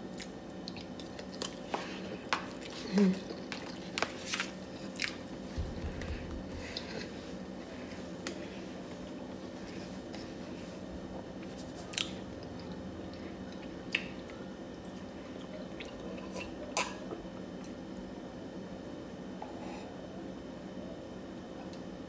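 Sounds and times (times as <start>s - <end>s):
person chewing food: 0.0s - 8.5s, 11.1s - 17.2s
steady low hum: 0.0s - 22.0s.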